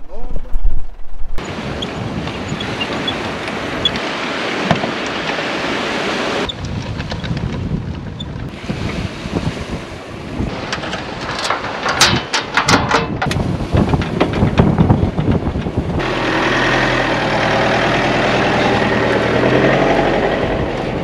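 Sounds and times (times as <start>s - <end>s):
metal tow coupling and chain rattling: 10.6s - 14.7s
diesel engine running: 15.3s - 21.0s.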